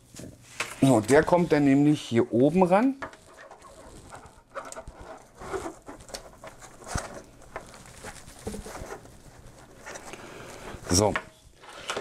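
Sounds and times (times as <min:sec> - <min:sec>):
cables rustling and clicking: 0:02.8 - 0:12.0.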